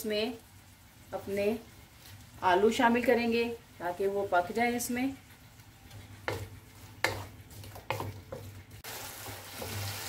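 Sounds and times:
food sizzling in frying pan: 0.0s - 10.0s
spatula scraping frying pan: 4.5s - 10.0s.

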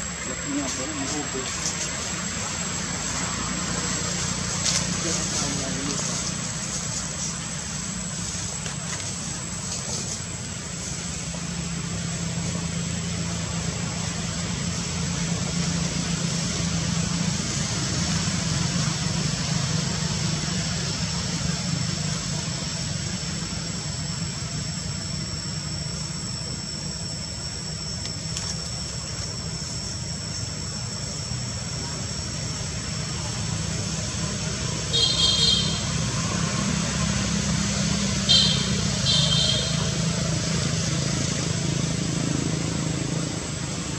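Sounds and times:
low engine-like hum: 0.0s - 43.9s
thin high-pitched whine: 0.0s - 43.9s.

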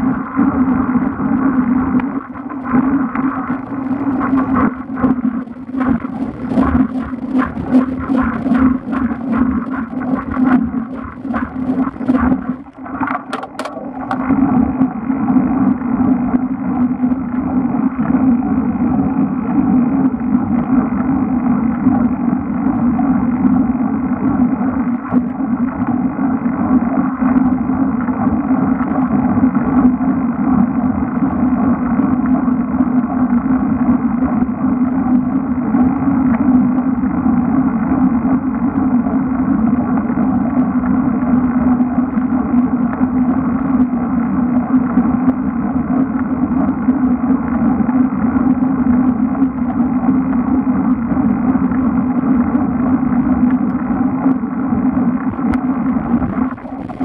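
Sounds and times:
bicycle road rumble: 0.0s - 19.0s.

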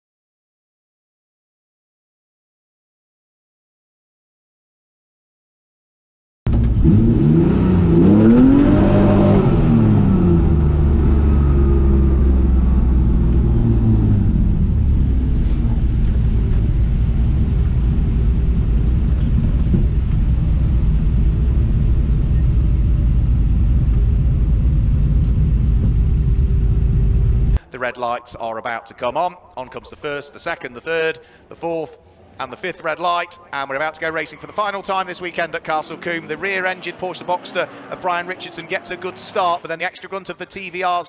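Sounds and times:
race car engine revving and idling: 6.5s - 27.6s.

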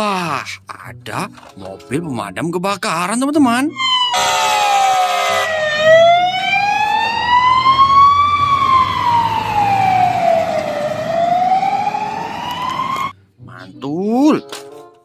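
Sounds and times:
fire engine siren wailing: 3.7s - 13.1s
horn blast: 4.1s - 5.6s
truck engine rumbling: 4.2s - 13.1s.

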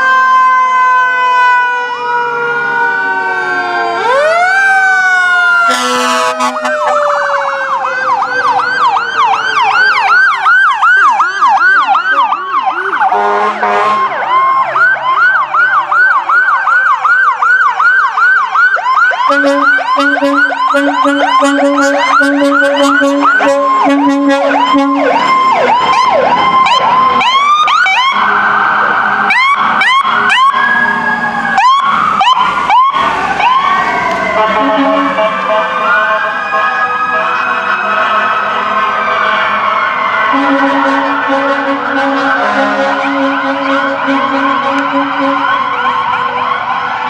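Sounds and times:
fire truck sirens: 0.0s - 47.0s
low horn blasts: 5.7s - 7.0s, 13.1s - 14.1s, 19.3s - 25.3s, 34.4s - 36.4s, 40.3s - 45.6s.

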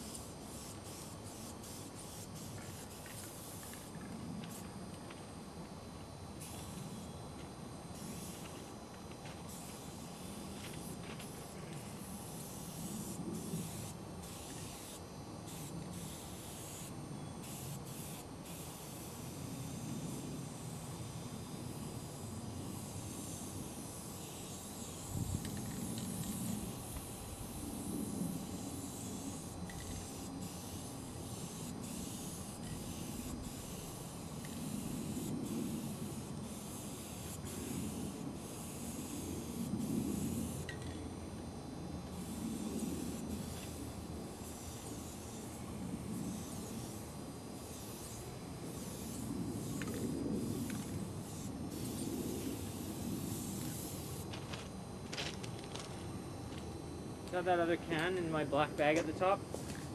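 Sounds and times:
spray-paint can hissing: 0.0s - 4.7s, 9.4s - 20.7s, 21.4s - 40.9s, 47.6s - 54.3s.

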